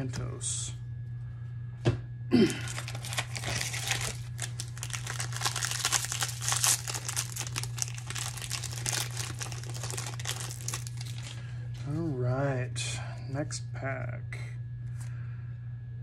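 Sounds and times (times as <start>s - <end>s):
plastic foil wrapper crinkling: 2.5s - 11.5s.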